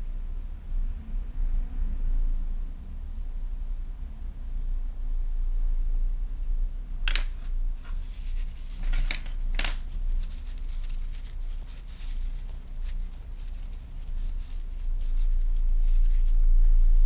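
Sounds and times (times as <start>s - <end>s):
steady low hum: 0.0s - 17.0s
paper tissue rustling: 7.4s - 17.0s.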